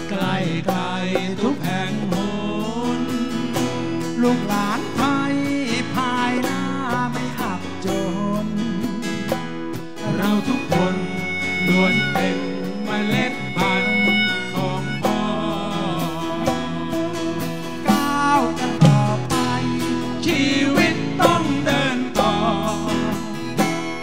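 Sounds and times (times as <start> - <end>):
acoustic guitar over bass and drums: 0.0 - 24.0
pitch-bending lead melody: 8.5 - 24.0.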